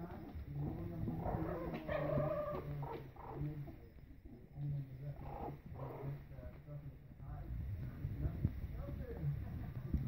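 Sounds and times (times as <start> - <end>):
puppies squealing and whining: 1.1 - 3.4.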